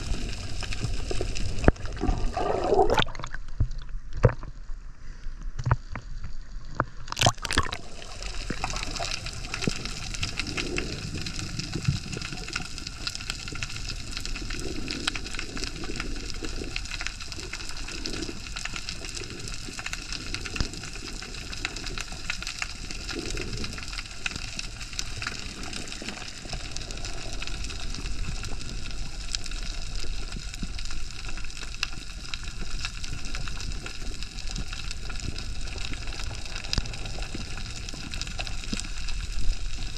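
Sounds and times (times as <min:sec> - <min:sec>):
underwater hiss: 0:00.0 - 0:03.2, 0:07.6 - 0:31.6, 0:32.5 - 0:39.9
underwater gurgles: 0:00.0 - 0:39.9
water splash: 0:01.6 - 0:04.3, 0:07.0 - 0:09.2
water sloshing: 0:01.7 - 0:04.5, 0:06.8 - 0:09.1.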